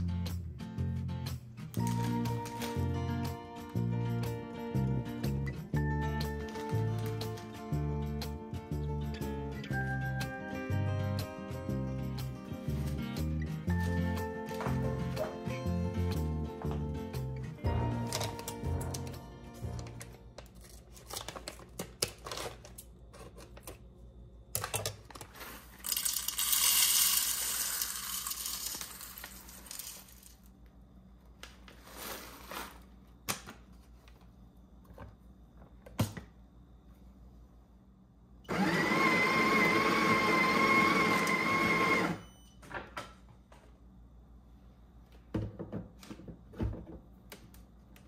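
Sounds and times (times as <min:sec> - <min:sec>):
kitchen appliance motor whining: 0:38.5 - 0:42.2.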